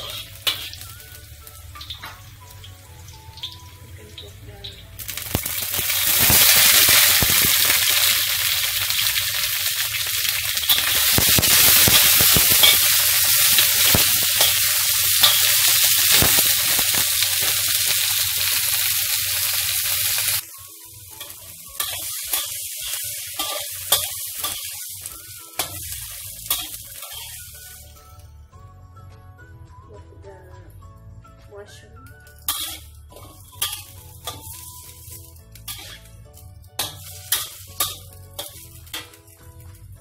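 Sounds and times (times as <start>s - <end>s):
metal spatula scraping a wok: 0.0s - 0.8s, 10.2s - 18.2s, 21.2s - 27.8s, 32.5s - 36.2s, 36.8s - 39.2s
vegetables sizzling in hot oil: 0.0s - 28.2s, 32.3s - 40.0s.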